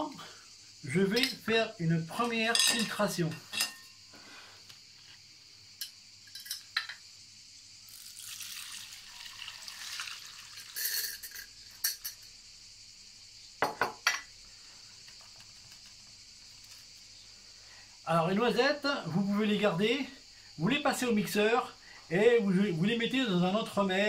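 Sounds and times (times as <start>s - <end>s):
glass and metal clinks: 1.1s - 1.5s, 2.2s - 4.0s, 5.8s - 7.0s, 10.5s - 12.3s, 13.6s - 14.3s
liquid trickling through sieve: 7.9s - 11.5s.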